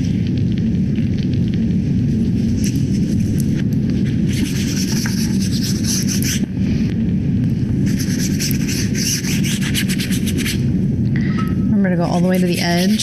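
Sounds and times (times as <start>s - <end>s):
low steady rumble: 0.0s - 13.0s
brush bristles scrubbing fabric: 12.1s - 13.0s.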